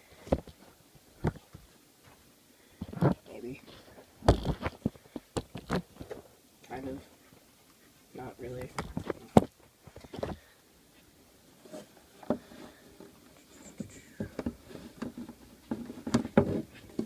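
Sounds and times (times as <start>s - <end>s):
rustling: 0.0s - 17.0s.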